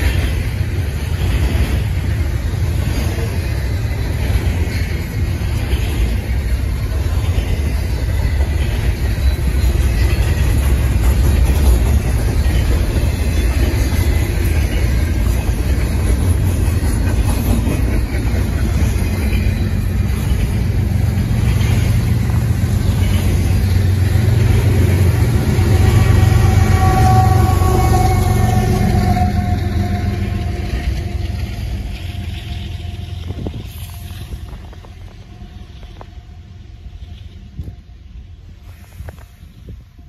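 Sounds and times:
freight train wheels rumbling on rail: 0.0s - 40.0s.

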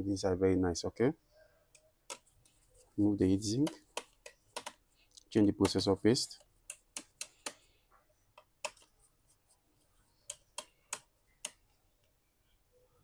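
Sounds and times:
small sharp clicks and taps: 1.7s - 2.6s, 3.6s - 9.0s, 10.2s - 12.2s.

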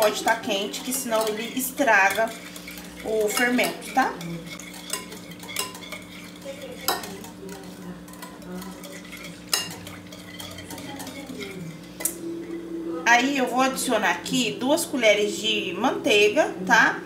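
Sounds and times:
whisk clinking on glass: 0.0s - 12.2s
whisk stirring liquid: 0.0s - 12.2s.

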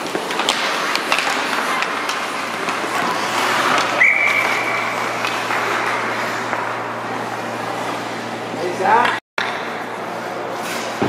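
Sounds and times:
ice rink noise: 0.0s - 11.0s
referee's whistle: 4.0s - 4.7s.

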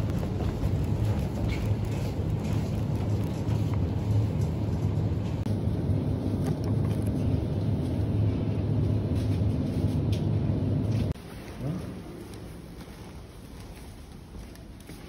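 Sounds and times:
shopping trolley rattling on tiles: 0.0s - 5.1s.

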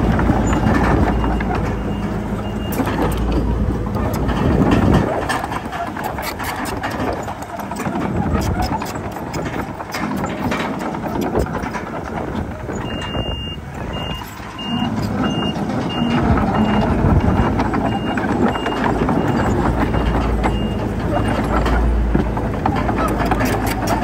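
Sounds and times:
reversing alarm beeping: 0.0s - 3.4s, 12.7s - 21.6s
heavy diesel engine: 0.0s - 24.0s.

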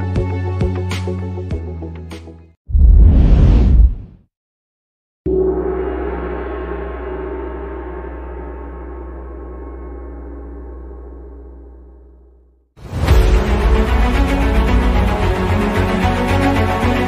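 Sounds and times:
deep ringing hit: 5.3s - 12.6s.

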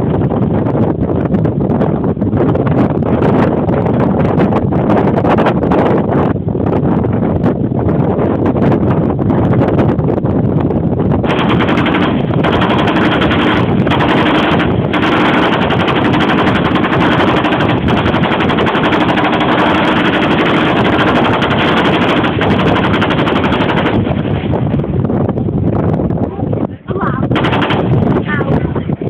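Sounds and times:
machine gun firing bursts: 11.2s - 24.6s, 27.3s - 28.6s.

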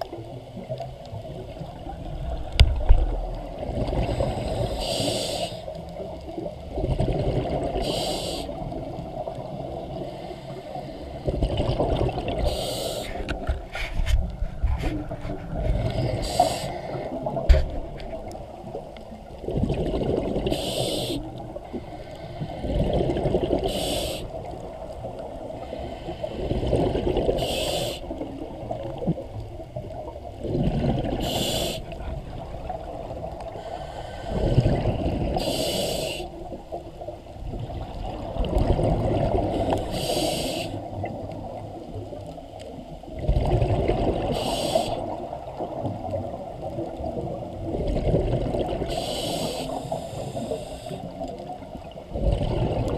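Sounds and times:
exhaled air bubbling underwater: 0.0s - 52.9s
regulator air hiss: 4.4s - 5.8s, 7.8s - 8.7s, 12.4s - 13.2s, 16.1s - 17.2s, 20.5s - 22.7s, 23.6s - 24.4s, 27.4s - 28.2s, 31.2s - 32.0s, 33.5s - 34.6s, 35.4s - 36.5s, 39.6s - 40.9s, 44.3s - 45.2s, 48.9s - 51.2s.

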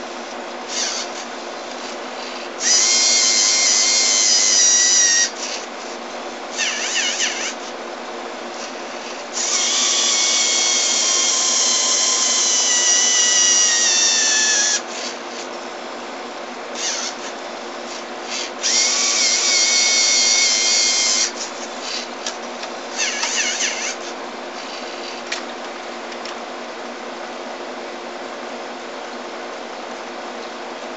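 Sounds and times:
small motors whirring through gears: 0.0s - 7.8s, 8.5s - 15.5s, 16.8s - 25.5s
steady low hum: 0.0s - 30.9s.

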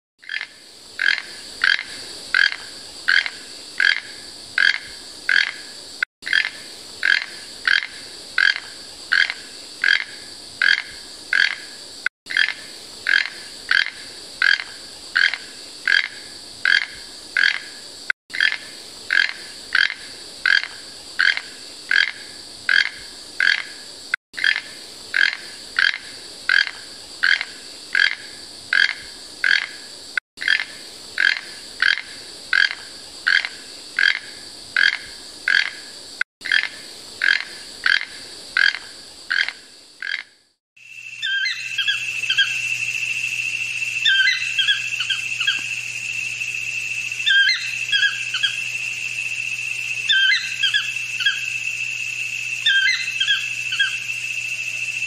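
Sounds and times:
toucan croaking calls: 0.2s - 5.6s, 6.2s - 11.7s, 12.3s - 17.7s, 18.3s - 23.7s, 30.4s - 35.8s, 36.4s - 40.3s, 41.0s - 55.0s
steady high buzz: 40.8s - 55.0s.

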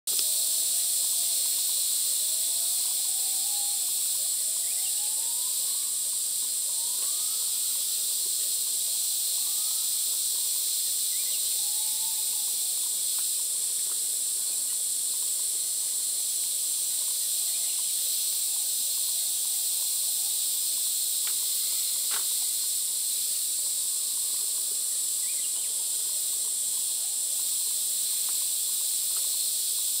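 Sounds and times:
faint high chirps: 0.1s - 15.9s, 16.6s - 28.5s
insect chorus: 0.1s - 30.0s.

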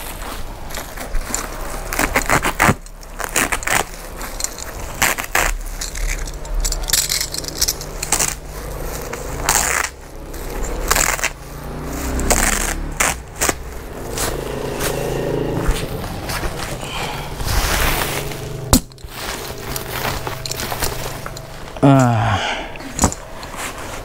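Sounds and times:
plastic sack ripping: 0.0s - 14.7s.

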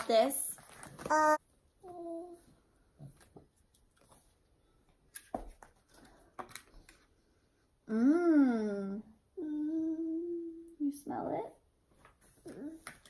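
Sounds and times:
woman humming mmm: 7.9s - 10.7s.

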